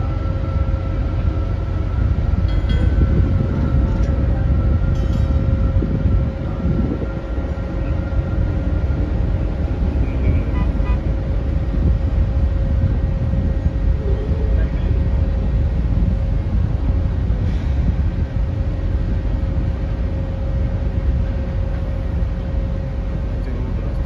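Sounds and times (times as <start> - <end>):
machinery rumbling: 0.0 - 24.0.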